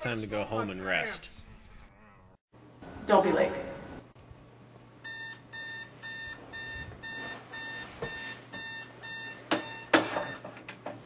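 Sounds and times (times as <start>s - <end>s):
alarm clock beeping: 5.0s - 10.4s.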